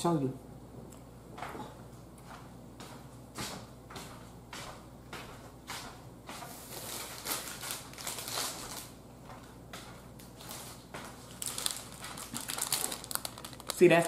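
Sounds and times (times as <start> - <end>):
plastic packet crinkling: 6.7 - 8.9, 10.5 - 14.0.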